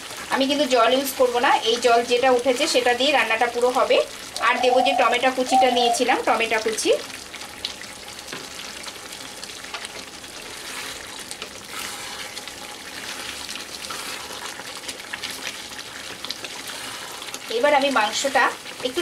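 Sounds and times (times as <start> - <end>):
chicken sizzling in a pan: 0.0 - 19.0
spatula scraping a pan: 10.3 - 17.5.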